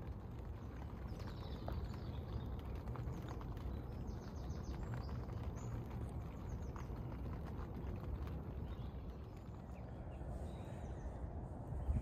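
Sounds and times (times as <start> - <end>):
low steady rumble: 0.0 - 12.0
small birds chirping: 0.1 - 12.0.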